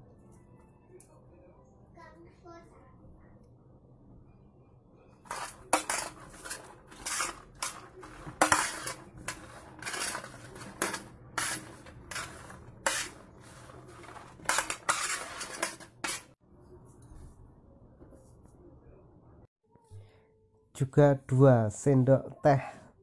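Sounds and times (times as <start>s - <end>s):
beans scraping on baking tray: 5.2s - 16.4s.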